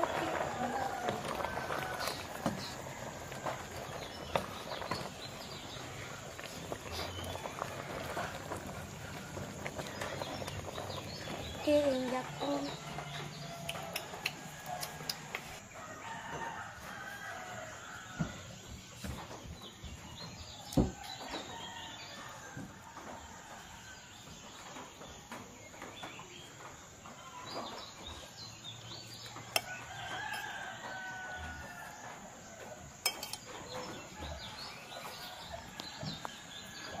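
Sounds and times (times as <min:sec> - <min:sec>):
rooster crowing: 0:00.0 - 0:03.4, 0:12.7 - 0:18.5, 0:29.5 - 0:37.0.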